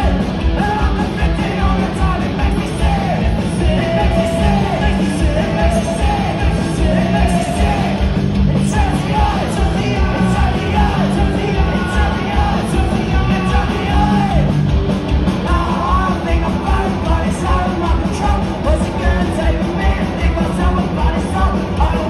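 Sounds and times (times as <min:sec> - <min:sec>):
shouted vocals: 0:00.0 - 0:14.6
driving drum beat: 0:00.0 - 0:22.0
electric guitar: 0:00.0 - 0:22.0.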